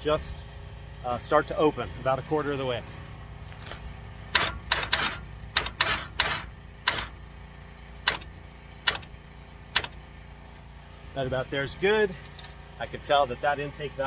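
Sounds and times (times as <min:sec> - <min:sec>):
sharp engine clicks: 0:03.6 - 0:07.2, 0:08.0 - 0:10.1.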